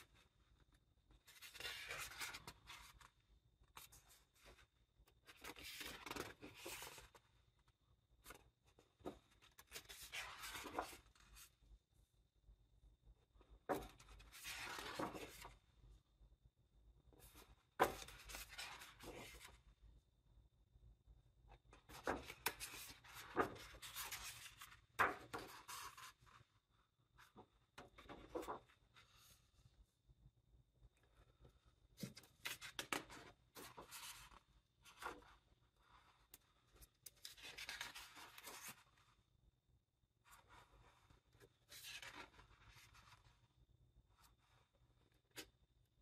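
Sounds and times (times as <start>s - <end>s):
book pages turning: 1.2s - 3.1s, 3.7s - 7.2s, 8.2s - 11.5s, 13.7s - 15.6s, 17.2s - 19.6s, 21.8s - 26.4s, 27.3s - 29.4s, 36.3s - 39.0s, 40.4s - 43.3s.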